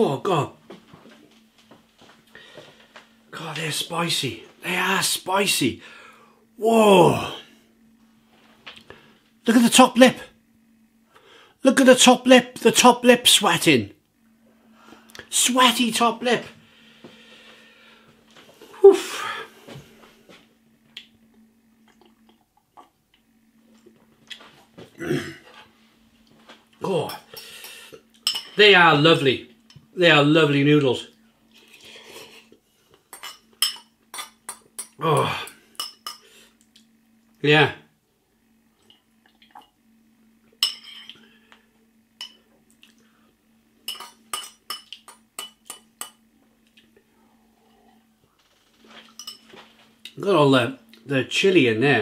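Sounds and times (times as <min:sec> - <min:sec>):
steady low hum: 0:00.0 - 0:52.0
metal spoon clinking against bowl: 0:43.9 - 0:46.2, 0:49.2 - 0:49.4.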